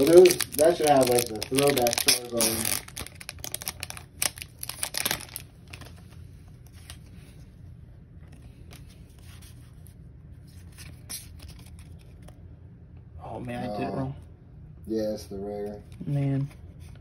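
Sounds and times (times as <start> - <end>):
foil wrapper crinkling and tearing: 0.0 - 7.0
cards rustling: 0.0 - 7.5, 8.2 - 12.4.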